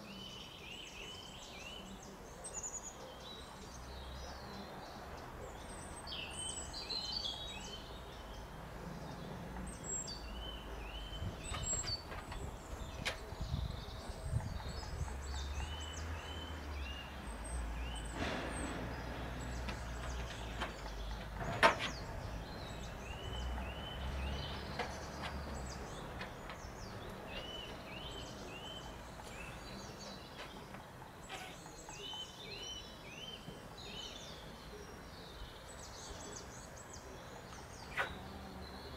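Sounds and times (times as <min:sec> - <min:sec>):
birds chirping: 0:00.0 - 0:38.9.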